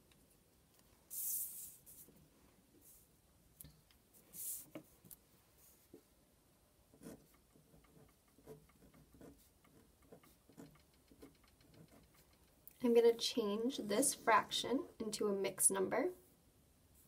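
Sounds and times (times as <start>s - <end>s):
pen writing on paper: 7.0s - 12.4s.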